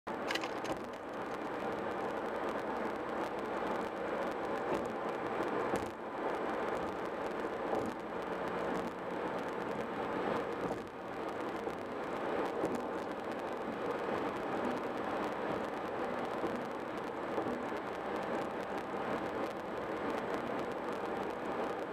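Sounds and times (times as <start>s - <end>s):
tyre and road noise: 0.1s - 3.9s.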